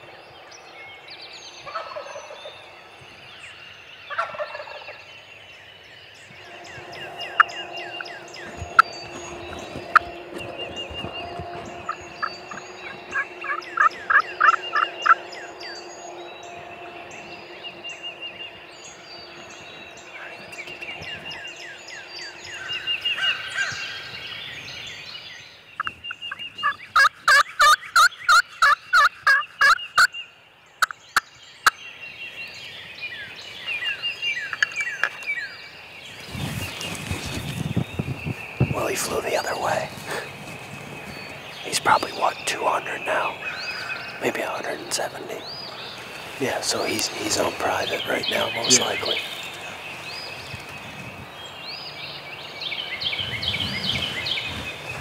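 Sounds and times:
songbirds chirping: 0.0s - 55.0s
turkey calls: 1.6s - 2.5s, 4.1s - 5.0s, 6.4s - 24.1s, 25.8s - 30.1s, 38.8s - 50.7s.

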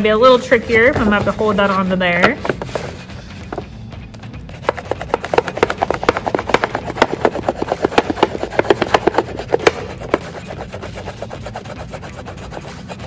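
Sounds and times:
crayon scratching over paper: 2.4s - 3.6s, 4.4s - 13.0s.

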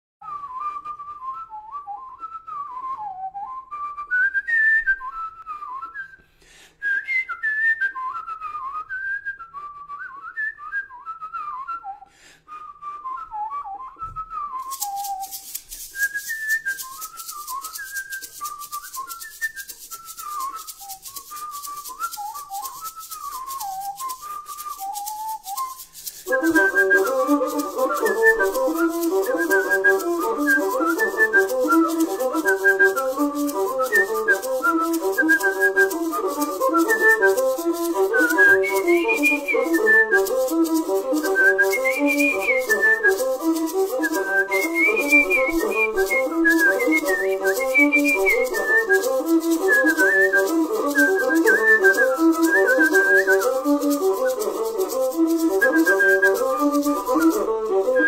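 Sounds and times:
person whistling a melody: 0.2s - 58.0s
fuller instrumental music: 14.6s - 58.0s
shaker rattling: 14.6s - 58.0s.

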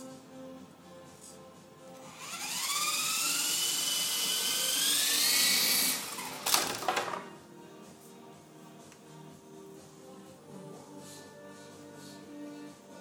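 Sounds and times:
rc helicopter rotor whine: 2.1s - 6.4s.

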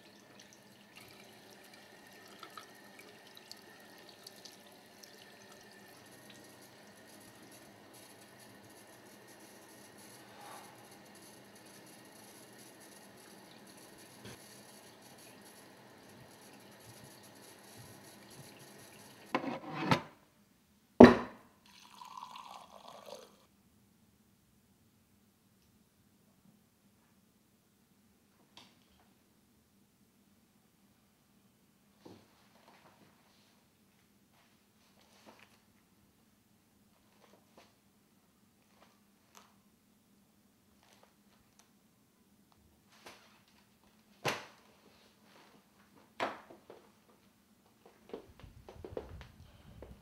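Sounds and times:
faucet water running into sink: 0.0s - 8.6s, 12.8s - 19.4s
liquor pouring into glass: 0.0s - 8.6s, 21.6s - 23.5s.

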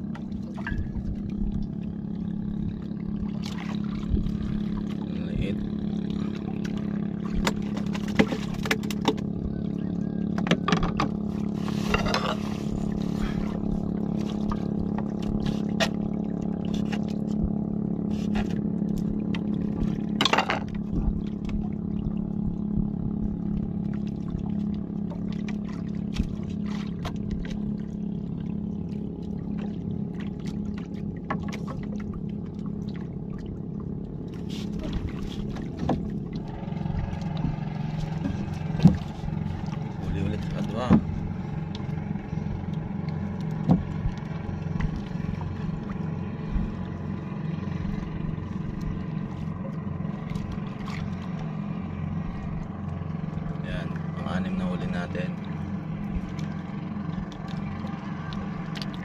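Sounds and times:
boat engine humming: 0.0s - 59.0s
sharp knocks and clatter: 7.4s - 9.3s.

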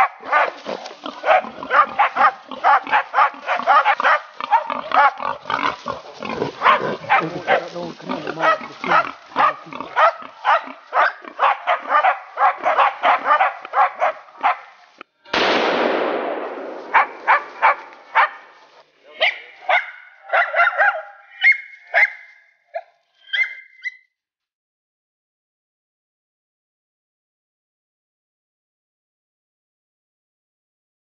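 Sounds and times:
dogs yelping: 0.0s - 14.9s, 16.9s - 24.0s
dogs barking: 0.0s - 15.0s, 16.9s - 24.0s
loud bang: 15.3s - 17.5s.

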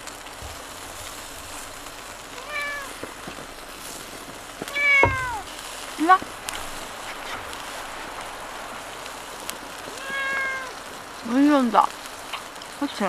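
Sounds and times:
dull low thump: 0.4s - 2.1s, 4.8s - 5.6s
cat meowing: 2.4s - 3.0s, 4.7s - 5.5s, 9.9s - 10.8s.

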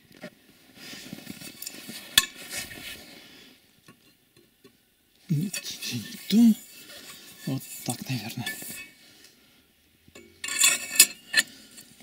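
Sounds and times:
lug wrench clinking on wheel nuts: 10.2s - 12.0s.

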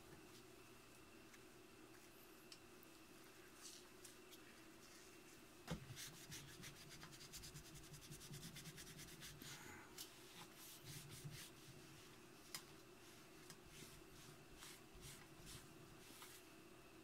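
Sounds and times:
cloth wiping metal: 13.0s - 16.5s.

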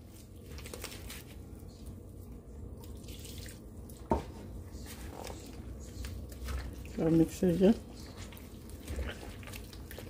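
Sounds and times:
water trickling into dough: 2.7s - 4.2s, 4.8s - 10.0s.

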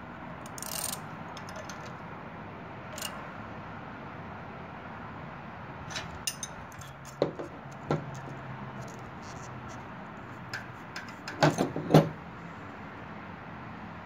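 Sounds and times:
hand tools clinking on metal: 5.9s - 7.2s.

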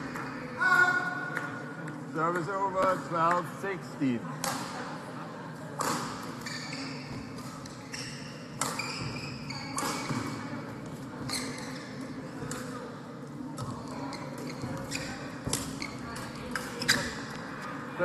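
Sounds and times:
shoes squeaking on court floor: 5.9s - 12.5s, 13.6s - 17.6s.

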